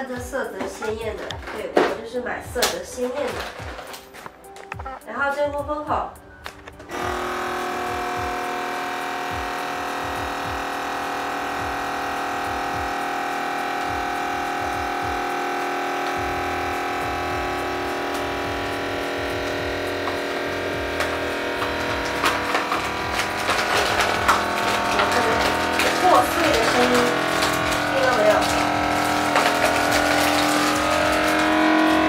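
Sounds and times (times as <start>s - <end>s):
dry noodles crackling and snapping: 2.6s - 4.8s, 6.4s - 32.0s
vacuum sealer pump motor: 6.8s - 32.0s.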